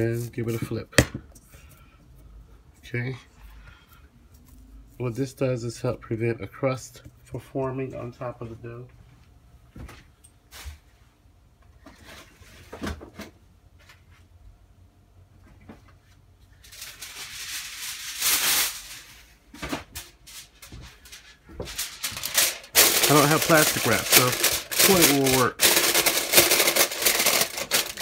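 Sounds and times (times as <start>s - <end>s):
aluminium foil crinkling: 16.5s - 19.3s, 19.9s - 28.0s.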